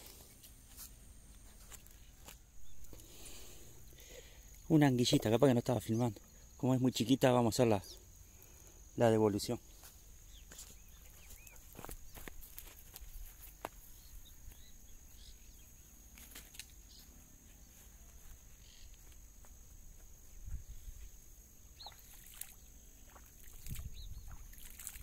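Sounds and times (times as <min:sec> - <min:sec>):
high insect trill: 0:00.0 - 0:25.0
faint bird chirps: 0:01.9 - 0:04.8, 0:09.4 - 0:12.3, 0:13.8 - 0:19.1, 0:20.2 - 0:25.0.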